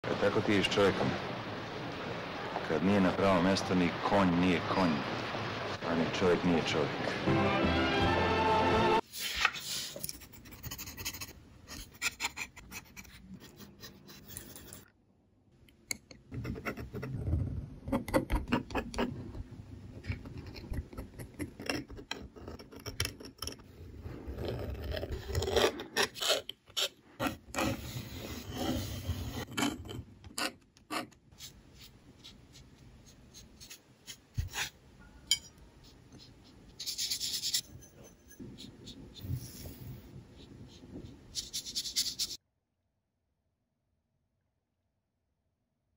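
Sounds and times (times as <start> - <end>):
pens scratching on paper: 9.3 - 14.8, 16.3 - 17.2, 20.1 - 34.8, 35.8 - 42.4.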